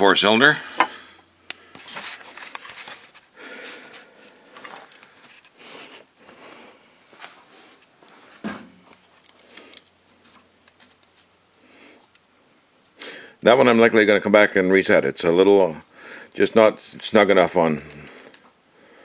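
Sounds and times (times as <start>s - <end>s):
rustling and handling noises: 0.7s - 13.0s.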